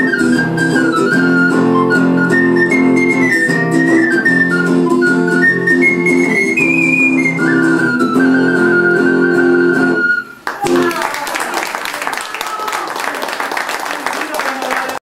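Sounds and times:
strummed acoustic guitar: 0:00.0 - 0:10.2
harmonica melody: 0:00.0 - 0:10.4.

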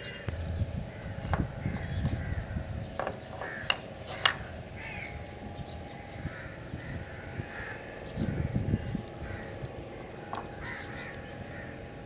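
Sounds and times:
crows cawing: 0:00.0 - 0:12.0
wiring connectors clicking: 0:08.9 - 0:11.5.

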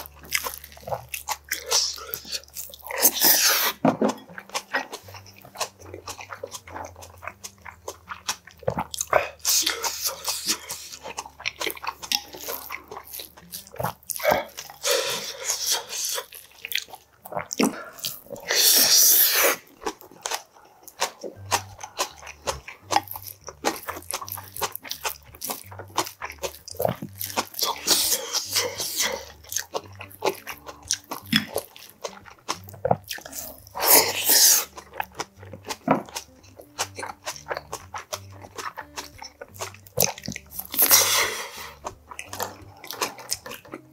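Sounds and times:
chewing and crunching: 0:00.0 - 0:43.9
loud slurps: 0:01.6 - 0:03.8, 0:17.6 - 0:19.7, 0:33.3 - 0:34.7, 0:40.8 - 0:41.8.

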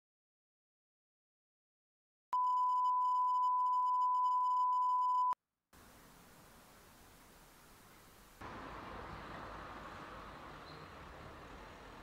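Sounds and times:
steady pure test tone beep: 0:02.4 - 0:05.4.

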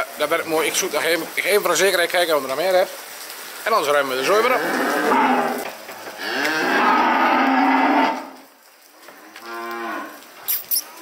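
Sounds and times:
cows mooing: 0:04.2 - 0:08.5, 0:09.1 - 0:10.2.

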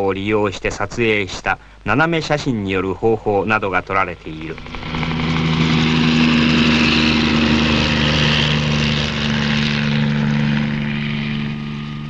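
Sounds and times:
helicopter engine and rotor: 0:04.5 - 0:12.0.

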